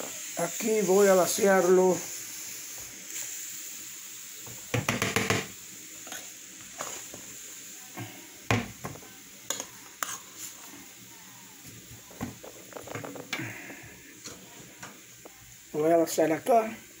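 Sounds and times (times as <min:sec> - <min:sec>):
spoon knocking and scraping a pot: 0:04.5 - 0:06.2.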